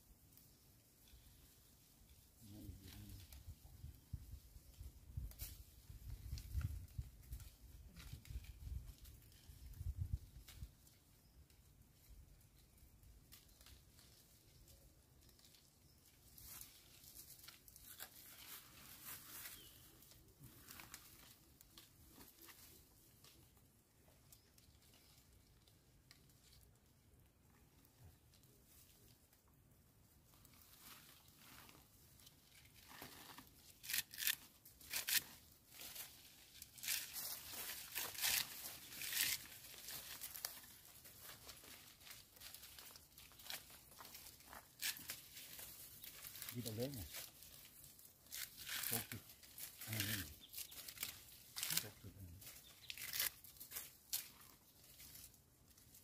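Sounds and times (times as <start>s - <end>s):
leaves rustling: 0.1s - 56.0s
twigs snapping: 32.8s - 55.3s.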